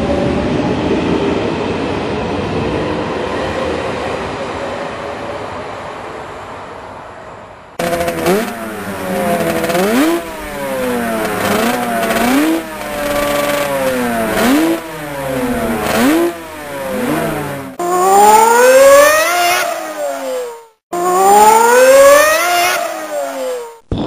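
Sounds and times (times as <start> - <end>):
racing motorcycle revving hard: 7.8 - 23.8
motorcycle engine revving: 7.8 - 23.9.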